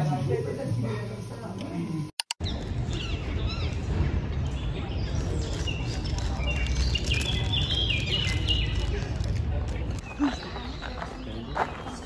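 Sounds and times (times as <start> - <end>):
small birds chirping: 2.4 - 12.0.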